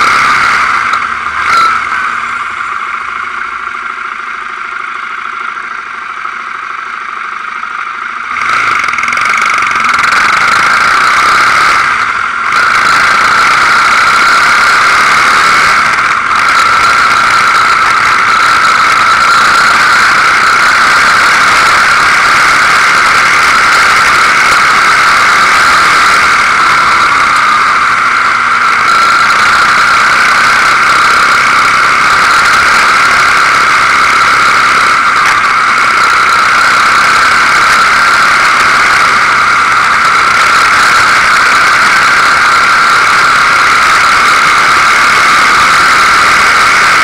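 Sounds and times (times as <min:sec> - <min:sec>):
high-pitched whine: 0:00.0 - 0:47.0
quad bike engine: 0:00.0 - 0:47.0.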